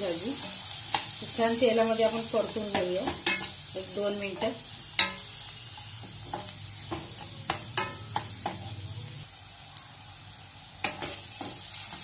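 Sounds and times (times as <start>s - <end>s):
onions sizzling in oil: 0.0s - 12.0s
spatula scraping and striking pan: 2.6s - 3.6s, 4.2s - 8.7s.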